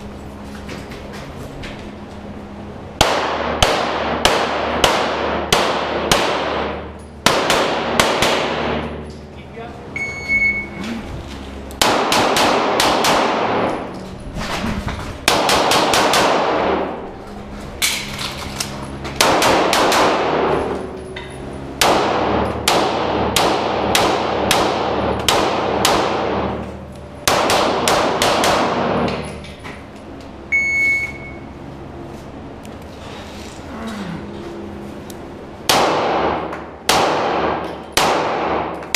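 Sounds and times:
echoing pistol shots: 3.0s - 8.8s, 11.8s - 13.7s, 15.3s - 16.9s, 19.2s - 20.6s, 21.8s - 26.6s, 27.2s - 29.0s, 35.7s - 38.7s.

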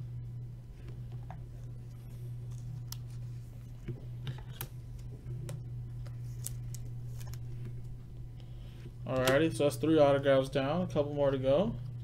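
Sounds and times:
steady low hum: 0.0s - 12.0s
cards being flipped by hand: 4.2s - 7.9s.

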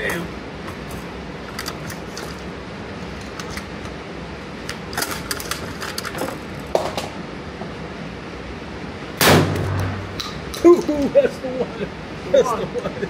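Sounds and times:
steady low hum: 0.0s - 13.0s
metallic clicks and clacks: 4.6s - 6.4s.

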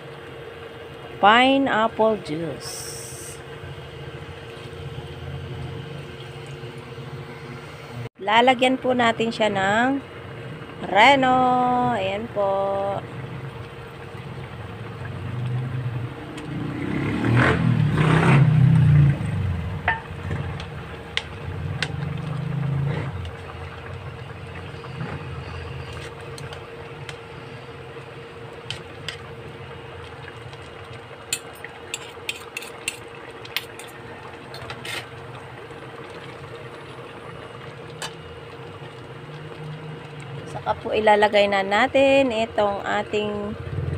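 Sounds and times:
steady hum: 0.0s - 43.9s
ladle scraping a steel pot: 34.6s - 35.1s.

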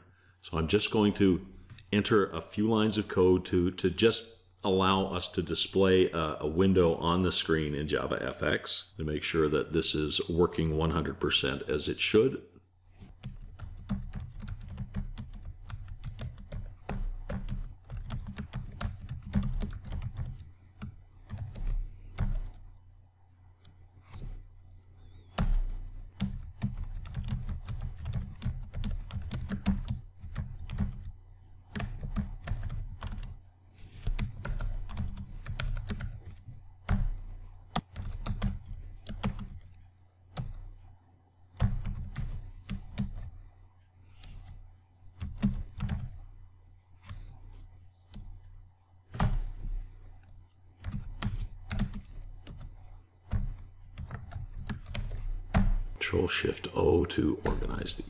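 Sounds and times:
computer keyboard typing: 13.0s - 22.8s, 23.4s - 43.5s, 44.1s - 48.6s, 49.2s - 56.1s.

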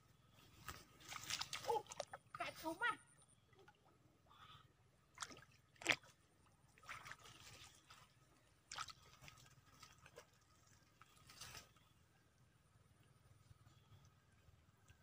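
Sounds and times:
small water splashes and plops: 0.6s - 4.0s, 5.0s - 11.9s.

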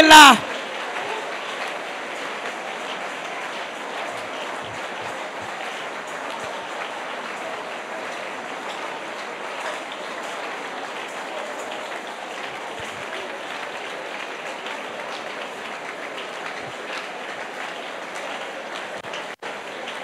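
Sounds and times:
crowd praying aloud: 0.0s - 20.0s.

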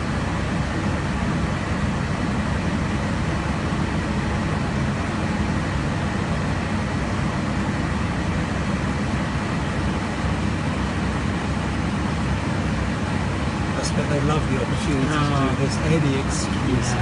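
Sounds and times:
jet aircraft cabin noise: 0.0s - 17.0s.

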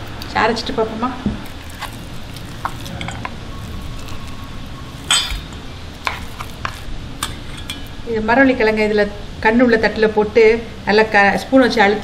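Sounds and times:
ringing metal clink: 5.0s - 5.6s.

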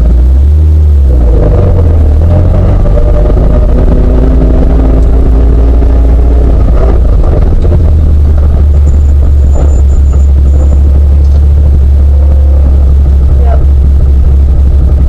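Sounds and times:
car engine running under load: 0.0s - 15.0s.

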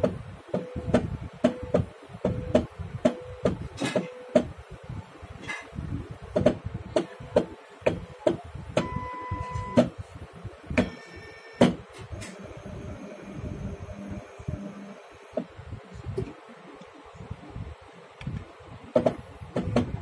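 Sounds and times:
buzzing tone: 8.8s - 9.9s, 10.8s - 15.4s
steady motor whine: 10.7s - 15.5s.

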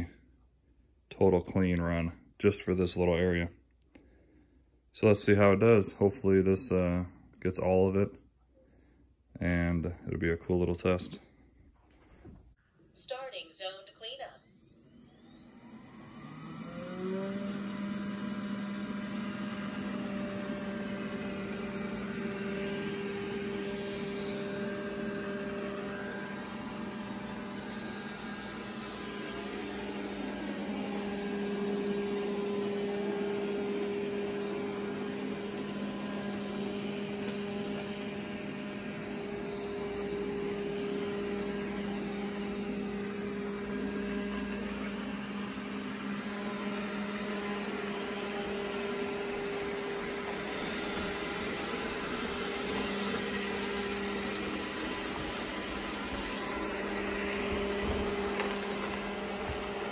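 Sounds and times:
robot vacuum humming: 13.1s - 59.9s.

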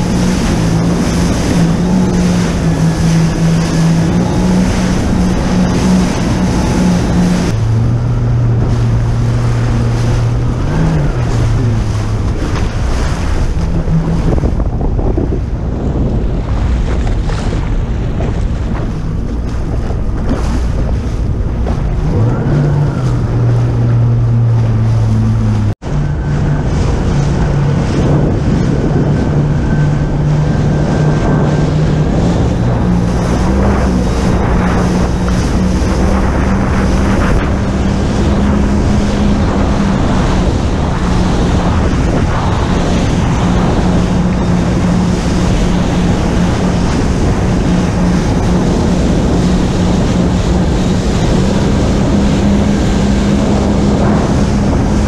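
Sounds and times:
jet ski engine humming: 0.0s - 55.0s
rushing water: 0.0s - 55.0s
wind on microphone: 0.0s - 55.0s.

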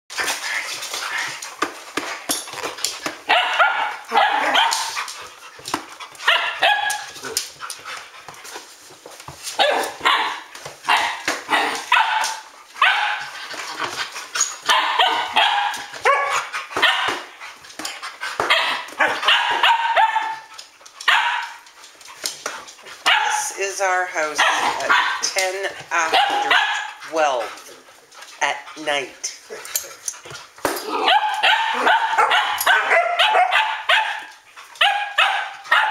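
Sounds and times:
dogs barking: 3.2s - 5.2s, 6.1s - 7.4s, 9.6s - 13.4s, 14.6s - 17.4s, 18.4s - 21.6s, 23.0s - 23.6s, 24.2s - 25.4s, 26.0s - 27.3s, 30.9s - 35.9s.

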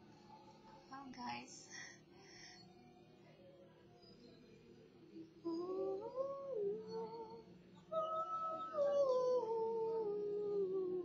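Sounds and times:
woman humming a slow tune: 5.4s - 11.0s.

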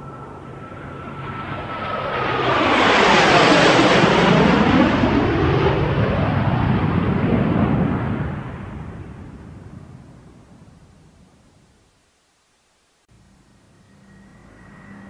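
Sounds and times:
jet airplane flying past: 0.0s - 10.3s, 13.7s - 15.0s.

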